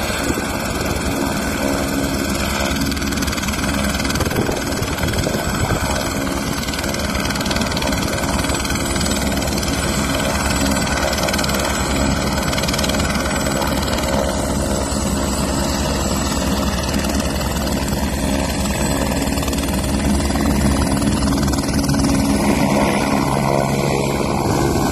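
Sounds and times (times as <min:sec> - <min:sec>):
helicopter turbine and rotor: 0:00.0 - 0:24.9.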